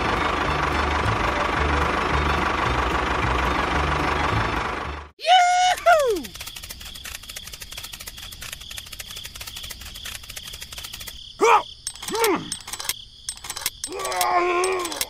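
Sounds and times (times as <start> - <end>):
crickets chirping: 5.3 - 15.0.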